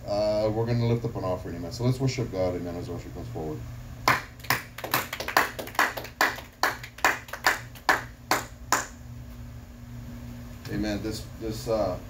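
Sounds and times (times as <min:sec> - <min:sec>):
hands clapping: 0:04.0 - 0:09.0.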